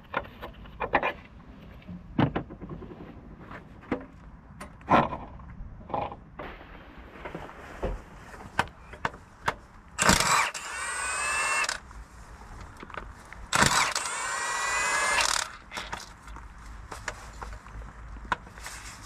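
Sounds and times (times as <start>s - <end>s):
power wrench whining: 10.0s - 11.8s, 13.5s - 16.0s.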